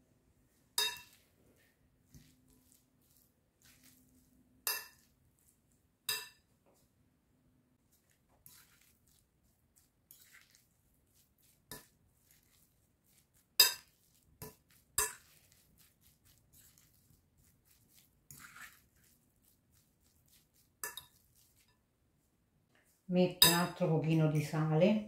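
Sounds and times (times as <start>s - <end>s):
metal fork clinking on glass bowl: 0.8s - 1.2s, 4.7s - 5.1s, 6.1s - 6.4s, 13.6s - 15.4s, 20.8s - 21.2s, 23.4s - 23.8s
food scraping and rustling: 1.0s - 5.9s, 7.8s - 21.9s.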